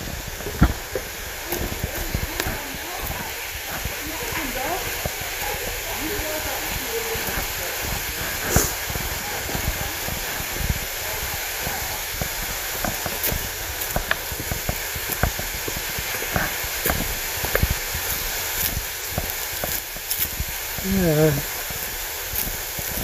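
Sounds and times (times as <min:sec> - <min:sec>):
footsteps on a trail: 0:00.0 - 0:23.0
steady hiss: 0:00.0 - 0:23.0.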